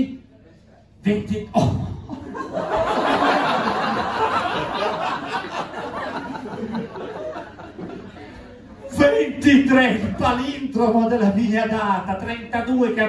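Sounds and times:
audience laughing: 2.1s - 8.9s.

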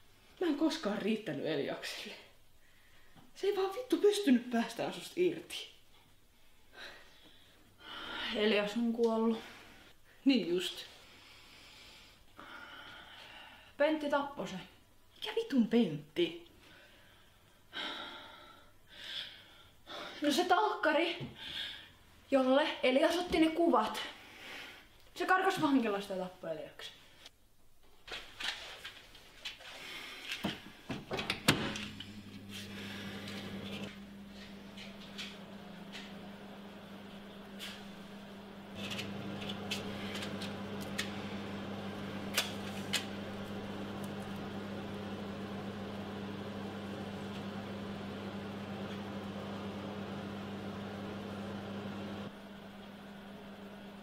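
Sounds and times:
steady low hum: 31.6s - 54.0s.

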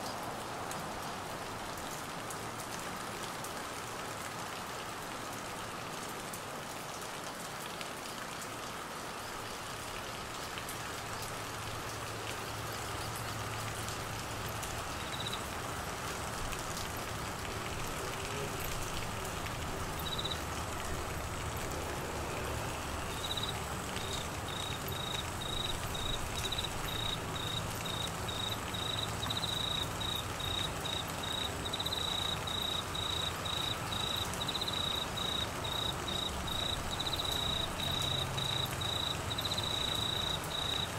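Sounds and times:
heavy rain falling: 0.0s - 40.9s
cricket chirping: 14.9s - 15.4s, 20.0s - 20.4s, 23.1s - 40.9s.

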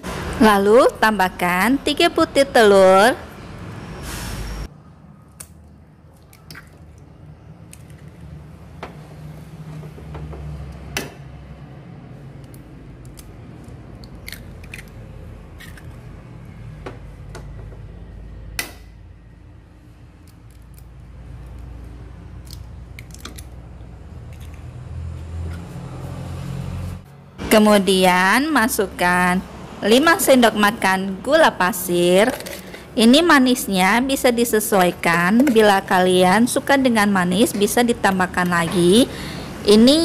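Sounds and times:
eggshells cracking: 12.4s - 15.0s, 22.3s - 23.6s.

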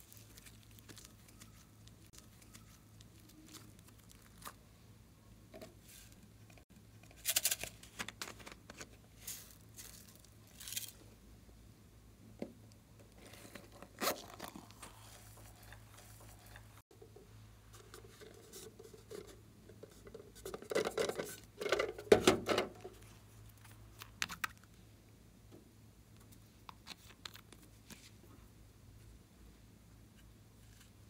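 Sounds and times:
hands scratching plastic toys: 0.0s - 4.6s, 13.2s - 16.8s
faint low hum: 0.0s - 31.0s.

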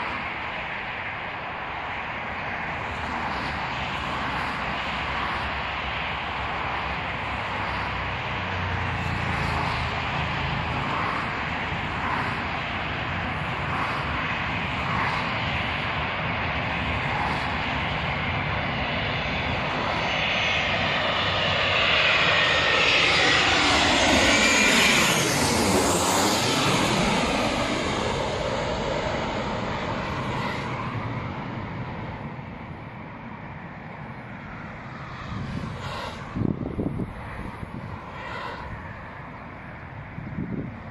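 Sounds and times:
jet airliner passing overhead: 0.0s - 40.9s.

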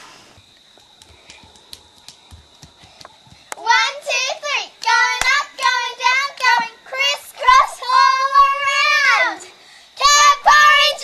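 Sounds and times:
girls singing a clapping chant: 3.5s - 9.2s.

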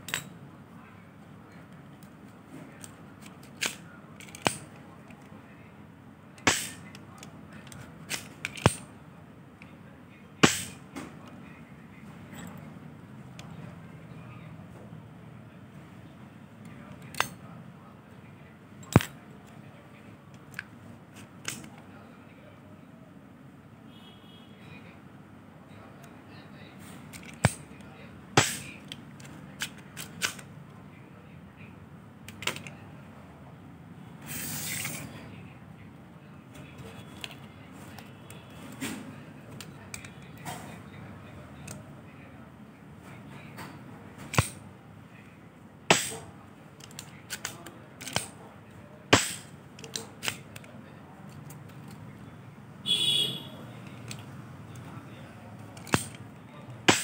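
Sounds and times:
spring plunger snapping: 3.4s - 4.7s, 6.4s - 7.0s, 8.1s - 8.8s, 10.4s - 10.8s, 28.4s - 28.7s, 44.3s - 44.6s, 45.9s - 46.2s, 49.1s - 50.4s, 55.8s - 56.2s
rustling scrape: 34.3s - 35.1s.

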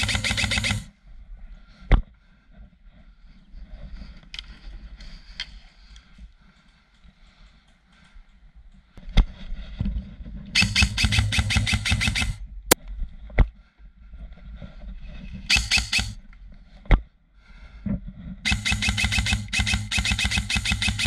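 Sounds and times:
airsoft gun firing: 0.0s - 0.9s, 10.6s - 12.4s, 15.5s - 16.2s, 18.5s - 21.0s.

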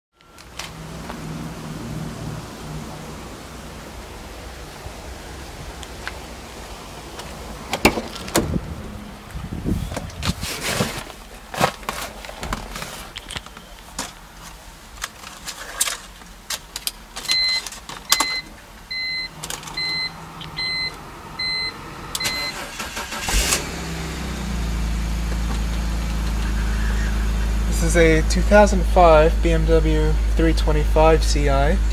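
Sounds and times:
car engine cranking and idling: 0.2s - 10.3s, 11.4s - 31.9s
car door clicks and knocks: 7.7s - 8.6s
dashboard warning chime beeping: 17.3s - 23.1s.

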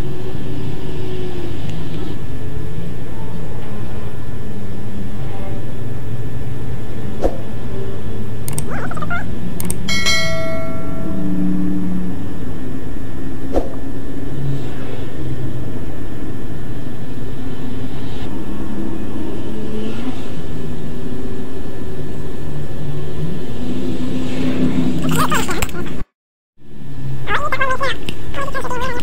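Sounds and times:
sharp clicks: 8.5s - 8.7s, 9.6s - 9.9s
bell chime: 9.9s - 11.6s
loud low drone: 9.9s - 19.3s.

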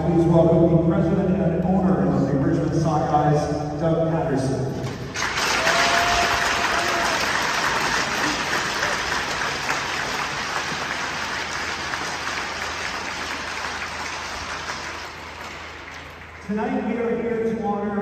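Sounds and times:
crowd applauding: 5.1s - 16.8s.

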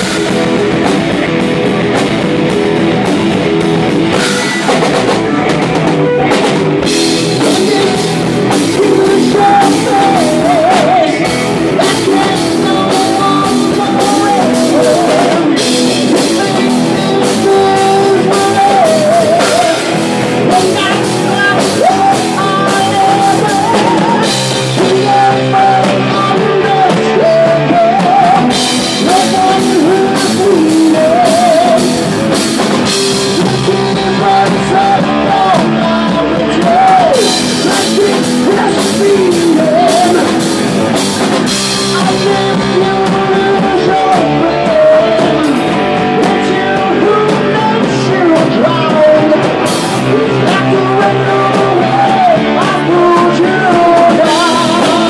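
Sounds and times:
drum kit with crashing cymbals: 0.0s - 55.0s
electric guitars: 0.0s - 55.0s
man singing into microphone: 6.1s - 55.0s.

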